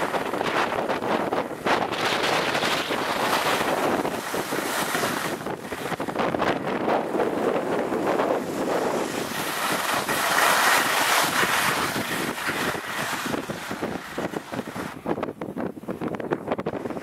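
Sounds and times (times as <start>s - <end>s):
skis sliding on snow: 0.0s - 15.3s
wind rushing over microphone: 0.0s - 17.0s.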